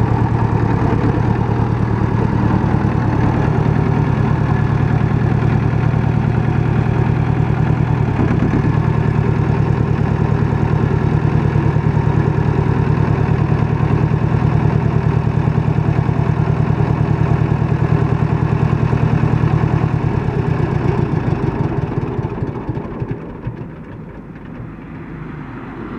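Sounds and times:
tractor diesel engine running: 0.0s - 25.9s.

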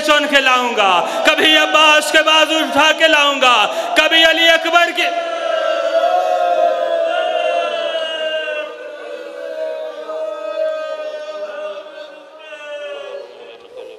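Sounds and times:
voices wailing in grief: 5.1s - 13.9s.

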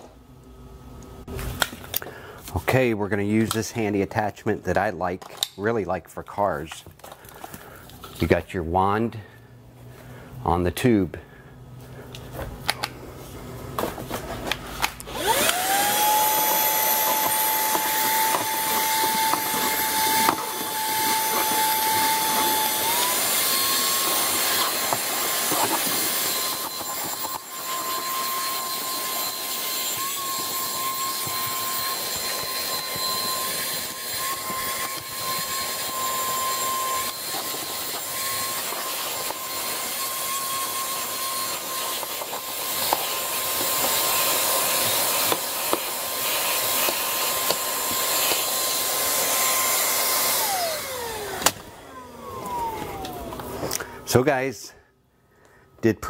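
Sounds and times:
vacuum motor whine: 11.8s - 54.1s.

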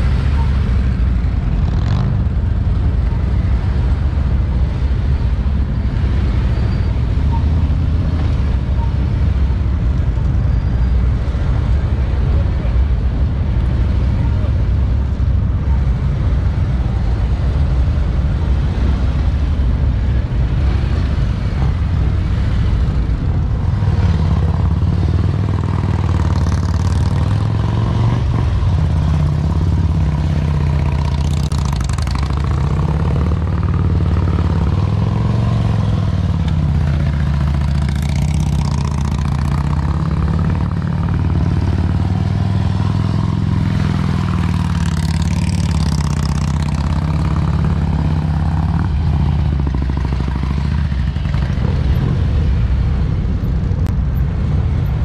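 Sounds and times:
motorcycle engines at low speed: 0.0s - 55.0s.

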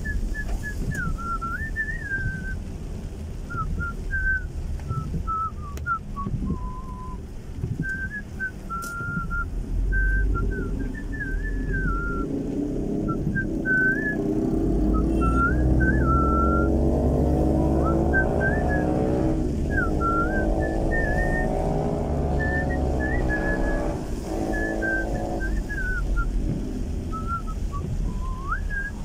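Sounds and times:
person whistling: 0.0s - 2.6s, 3.5s - 7.2s, 7.8s - 12.3s, 13.0s - 14.3s, 14.9s - 17.0s, 17.6s - 26.5s, 27.1s - 29.0s
car engine accelerating: 0.0s - 29.0s.

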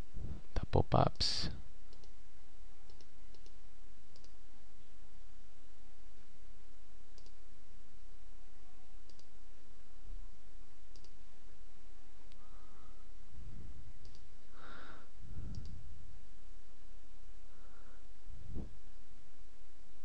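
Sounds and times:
steady low hum: 0.0s - 20.0s
computer mouse clicking: 1.9s - 2.2s, 2.9s - 4.4s, 7.2s - 7.4s, 9.0s - 9.4s, 10.9s - 11.2s, 14.0s - 14.3s, 15.5s - 15.8s.

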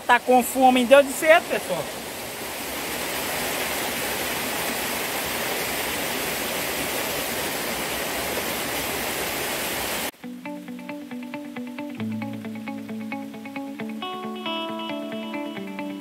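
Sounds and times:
waterfall pouring into pool: 0.2s - 10.1s.

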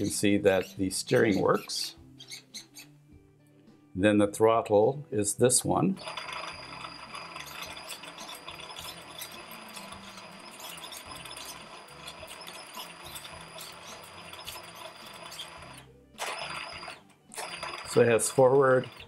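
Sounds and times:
electric motor high whine: 6.0s - 19.0s.

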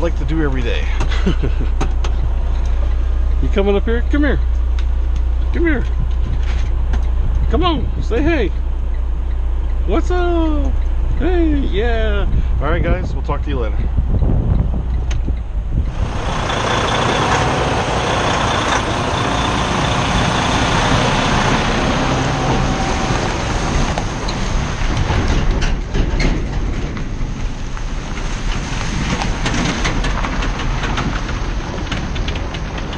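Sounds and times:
diesel truck engine: 0.0s - 32.9s
crackles and ticks: 4.4s - 6.2s.

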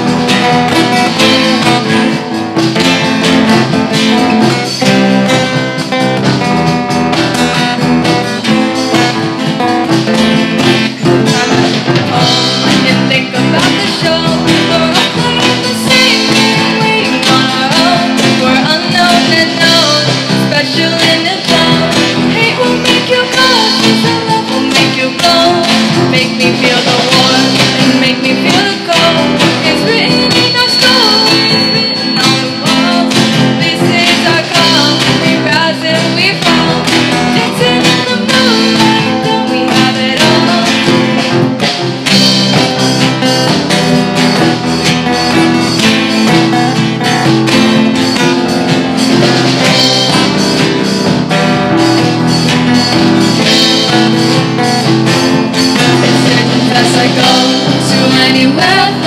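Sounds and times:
acoustic guitars strumming: 0.0s - 59.0s
girls singing into microphones: 10.8s - 41.3s, 55.6s - 59.0s
thin high tone: 29.5s - 34.4s.

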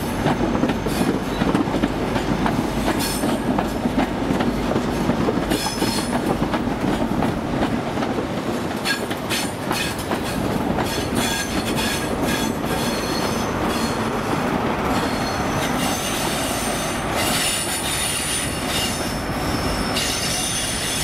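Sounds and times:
train wheels rumbling on rails: 0.0s - 21.0s
high wheel squeal: 8.9s - 21.0s.

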